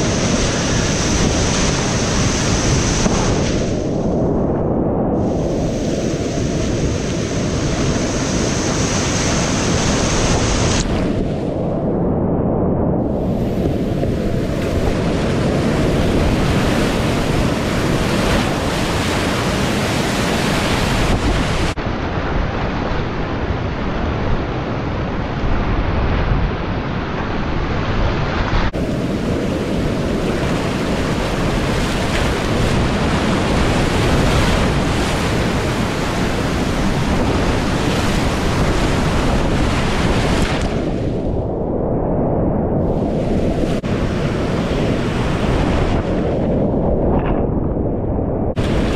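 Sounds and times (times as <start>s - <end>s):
water buffeting microphone: 0.0s - 4.2s, 5.2s - 11.6s, 13.0s - 22.8s, 27.2s - 41.3s, 48.5s - 48.9s.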